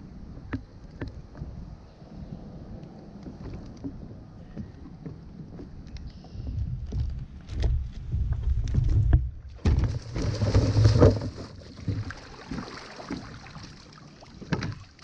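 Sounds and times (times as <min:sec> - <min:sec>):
big splash into water: 0:09.6 - 0:14.0
water sloshing: 0:09.6 - 0:15.0.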